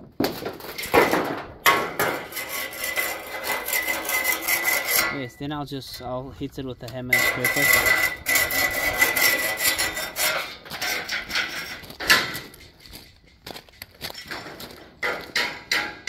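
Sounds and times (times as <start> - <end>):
hand scraper rasping on concrete: 2.0 - 5.3, 7.1 - 11.8
footsteps on gravel: 9.0 - 15.7.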